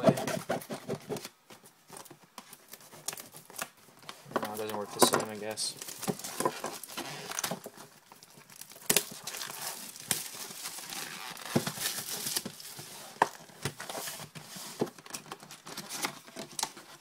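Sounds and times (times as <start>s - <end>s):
wrapper crinkling and tearing: 2.0s - 14.3s.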